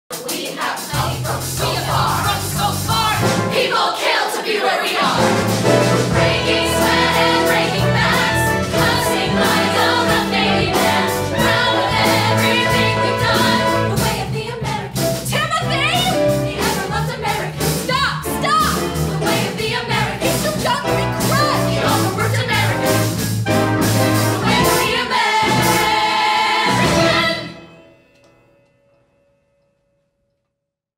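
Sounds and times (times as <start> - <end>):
mixed chorus singing: 0.1 - 15.1, 16.3 - 17.8, 18.8 - 23.0, 24.2 - 27.8.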